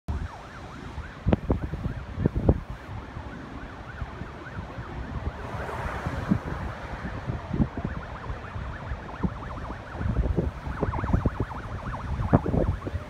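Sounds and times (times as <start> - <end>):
siren in fast yelp: 0.1 - 5.4, 6.3 - 13.0.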